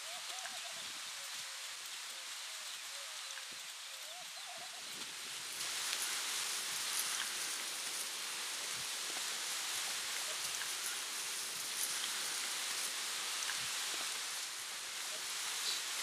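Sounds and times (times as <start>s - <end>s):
steady outdoor hiss: 0.0s - 16.0s
faint ticks: 4.9s - 16.0s.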